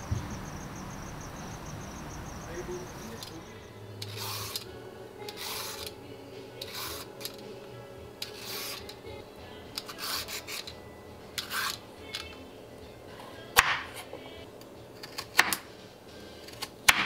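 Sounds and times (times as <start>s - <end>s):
soft background music: 0.2s - 17.0s
peeler scraping carrots: 4.0s - 5.9s, 8.2s - 9.0s, 9.8s - 10.7s, 11.4s - 11.8s
knife chopping on cutting board: 15.0s - 15.6s, 16.5s - 17.0s.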